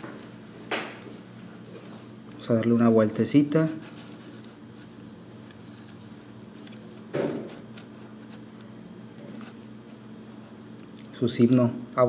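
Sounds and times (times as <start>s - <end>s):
low steady hum: 0.0s - 12.0s.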